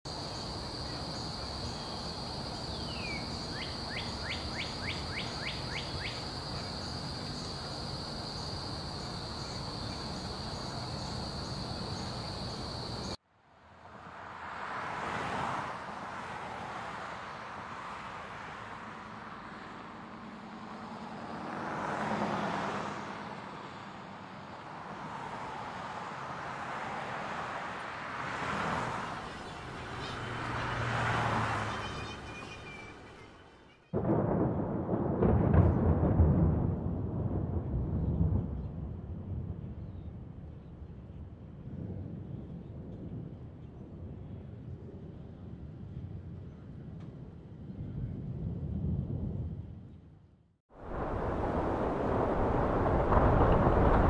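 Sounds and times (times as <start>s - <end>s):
vehicles swishing past: 0.1s - 33.9s.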